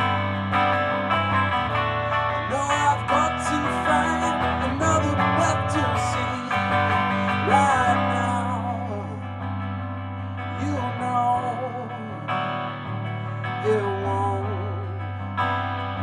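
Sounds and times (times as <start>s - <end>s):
electric guitar strummed chords: 0.0s - 16.0s
man singing: 2.1s - 9.4s, 10.5s - 12.6s, 13.3s - 15.1s.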